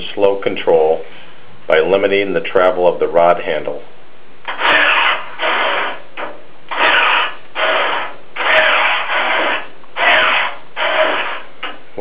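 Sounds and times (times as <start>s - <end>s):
actuator motor whirring: 4.5s - 11.8s.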